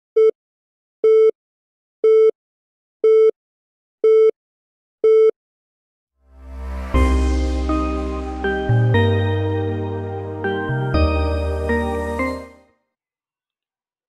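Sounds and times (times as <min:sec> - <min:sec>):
deep rumble: 0:06.3 - 0:10.4.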